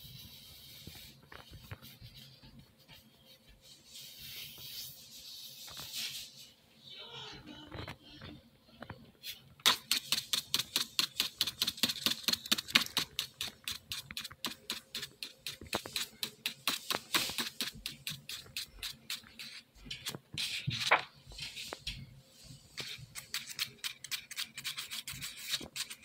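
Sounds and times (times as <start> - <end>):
pencil scratching on paper: 9.9 - 21.6, 22.8 - 26.0.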